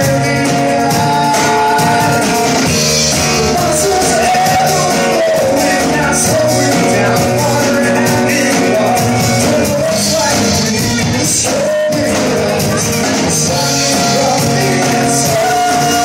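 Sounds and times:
acoustic guitar: 0.0 - 16.0
drum kit: 0.0 - 16.0
person singing: 0.0 - 16.0.

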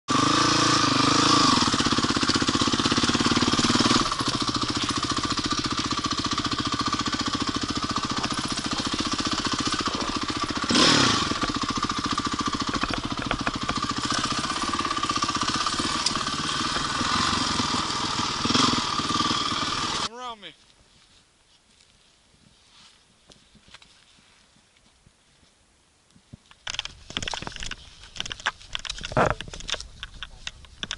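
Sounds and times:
motorbike engine running: 0.1 - 20.1.

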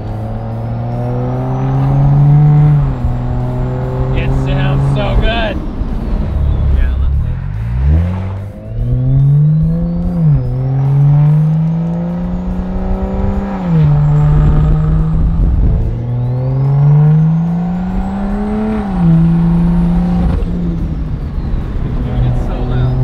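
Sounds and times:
car engine accelerating: 0.0 - 23.0.

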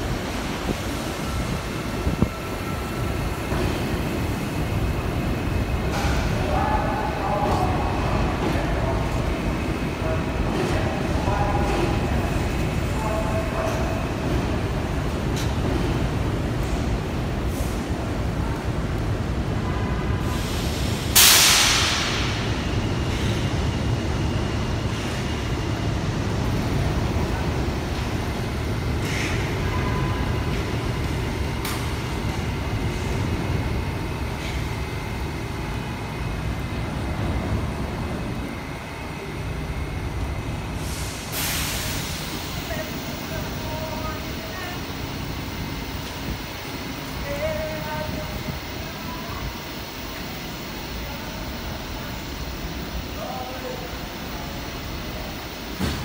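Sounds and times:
train wheels rumbling on rail: 0.0 - 56.0
brake air hiss: 20.2 - 22.2, 40.8 - 42.6.

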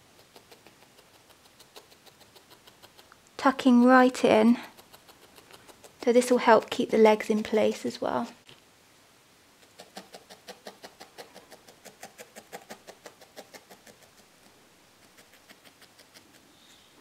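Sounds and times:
felting needle poking wool: 0.0 - 7.9.

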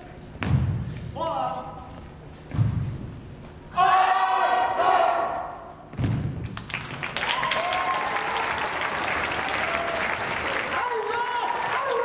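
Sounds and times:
person shouting a command: 3.7 - 5.5, 10.7 - 12.0
loud thump of team moving: 5.9 - 6.6
audience applauding: 6.6 - 12.0.

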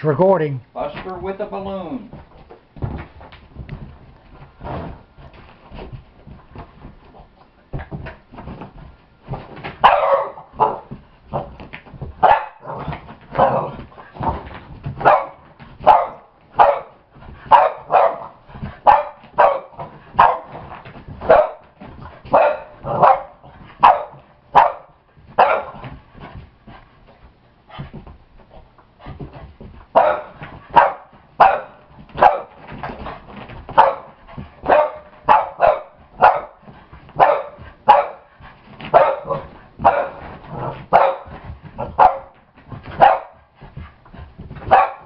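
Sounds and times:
soft knocks and scuffles: 2.0 - 9.9, 25.1 - 30.8, 36.0 - 44.9
dog barking: 9.8 - 10.9, 12.2 - 13.7, 15.0 - 20.6, 21.2 - 25.8, 29.9 - 32.6, 33.8 - 36.6, 37.2 - 38.3, 38.9 - 42.4, 43.0 - 43.4, 44.7 - 45.0.

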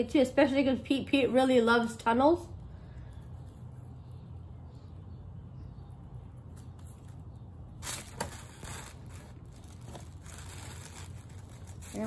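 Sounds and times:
low background hum: 0.0 - 12.0
grass tunnel and paper rustling: 7.8 - 12.0.

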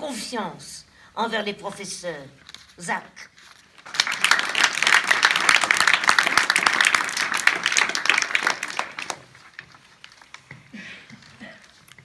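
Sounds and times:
audience applauding: 3.8 - 9.9.

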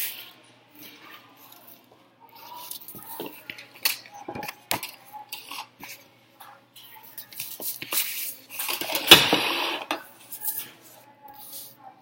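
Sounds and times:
plastic rubbing on paper: 9.6 - 11.9.

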